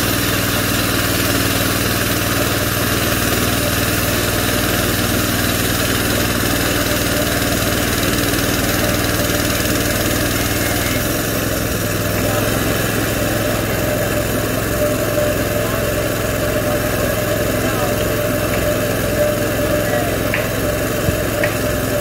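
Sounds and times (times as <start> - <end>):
small gas engine running: 0.0 - 22.0.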